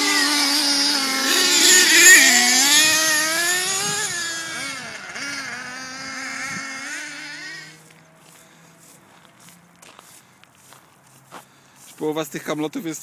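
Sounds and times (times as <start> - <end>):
small nitro engines revving: 0.0 - 10.2.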